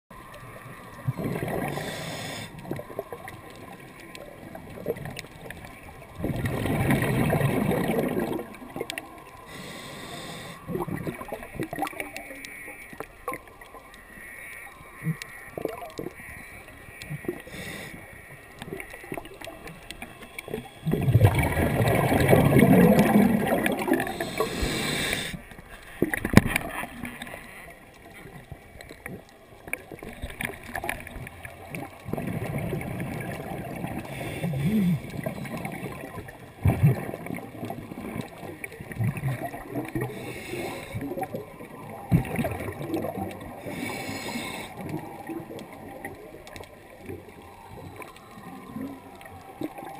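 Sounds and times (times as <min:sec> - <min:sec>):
scuba regulator bubbling underwater: 0:00.2 - 0:12.3, 0:18.6 - 0:25.4, 0:29.0 - 0:49.9.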